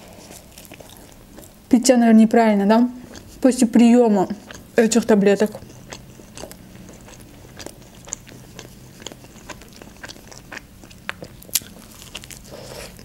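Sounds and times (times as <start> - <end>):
person chewing crunchy food: 0.0 - 1.7, 3.0 - 3.5, 4.3 - 13.0.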